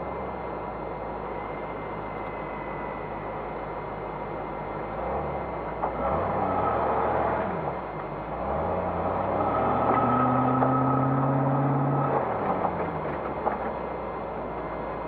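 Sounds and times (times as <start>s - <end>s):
engine revving under load: 4.9s - 13.7s.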